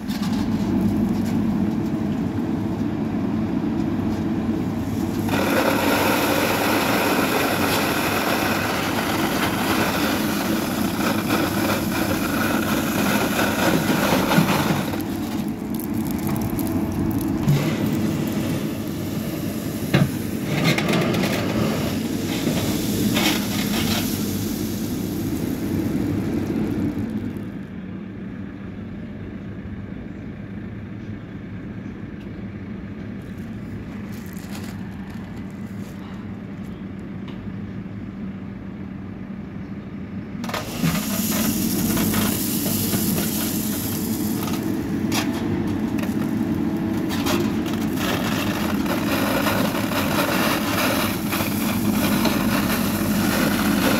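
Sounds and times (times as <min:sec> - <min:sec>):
diesel engine under load: 0:00.0 - 0:53.9
bucket scraping gravel: 0:04.9 - 0:27.0, 0:34.0 - 0:36.0, 0:40.4 - 0:53.9.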